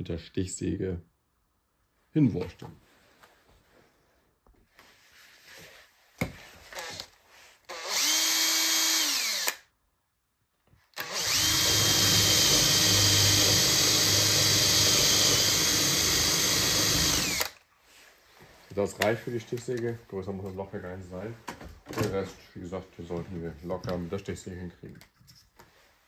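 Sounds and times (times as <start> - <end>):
cordless drill boring into wood: 6.7 - 7.1, 7.7 - 9.7, 11.0 - 17.6.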